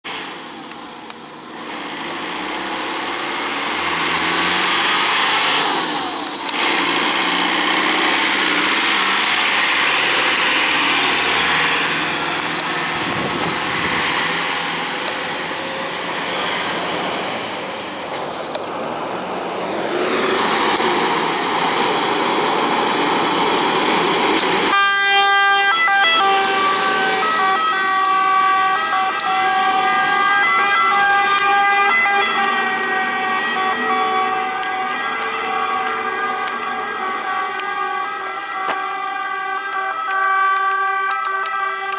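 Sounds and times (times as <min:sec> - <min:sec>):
fire engines running loudly: 0:00.0 - 0:41.9
two-tone siren: 0:08.4 - 0:16.6, 0:24.7 - 0:41.9.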